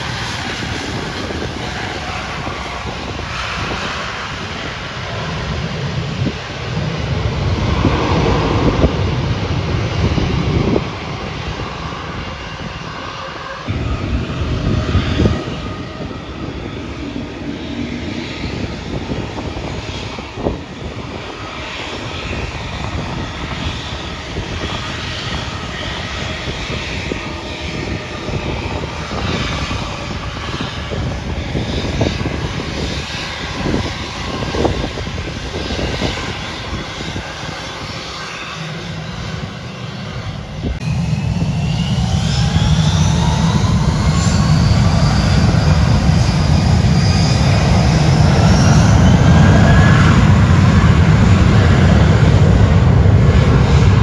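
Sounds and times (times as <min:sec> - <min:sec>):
jet engines rumbling: 0:00.0 - 0:54.0
engine whine rising in pitch: 0:37.1 - 0:54.0.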